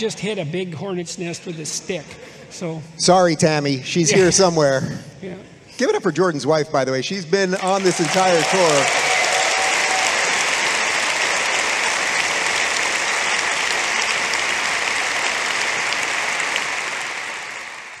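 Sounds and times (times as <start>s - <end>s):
large audience applauding: 7.5s - 18.0s.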